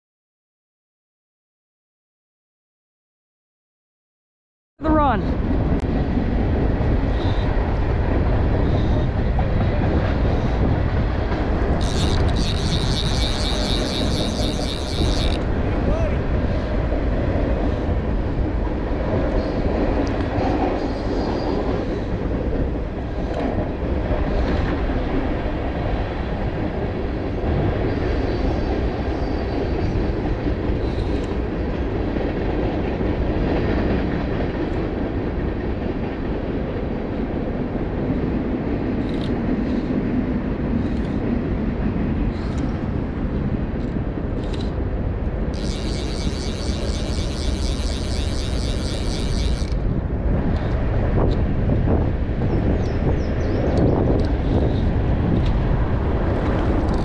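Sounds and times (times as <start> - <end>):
faint ticks: 11.8 - 15.4, 45.6 - 49.8.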